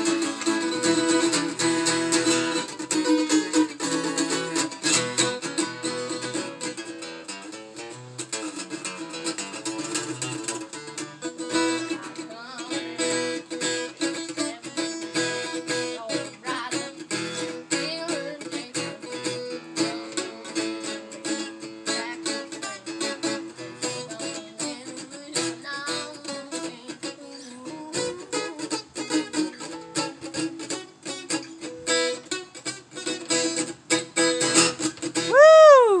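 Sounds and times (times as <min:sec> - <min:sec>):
acoustic guitar plucking: 0:00.0 - 0:36.0.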